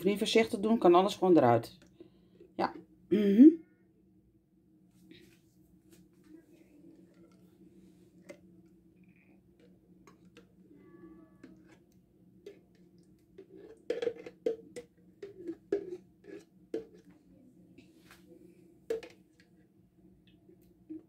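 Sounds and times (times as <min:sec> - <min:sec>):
utensil scraping inside a jar: 0:11.4 - 0:17.1.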